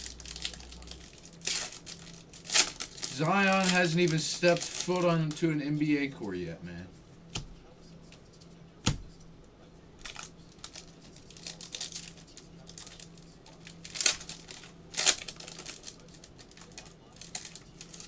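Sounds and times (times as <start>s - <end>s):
foil wrapper crinkling and tearing: 0.0s - 5.4s, 10.0s - 18.0s.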